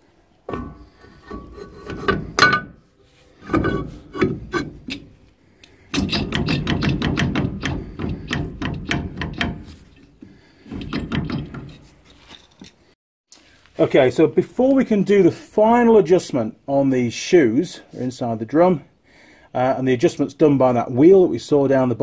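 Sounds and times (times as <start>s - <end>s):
metal knocks: 0.5s - 5.2s, 5.9s - 12.0s.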